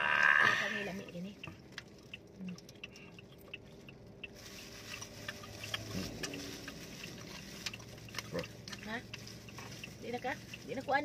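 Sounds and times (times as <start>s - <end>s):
low steady car hum: 0.0s - 11.0s
chewing: 0.1s - 10.7s
plastic bags crinkling: 4.4s - 9.9s.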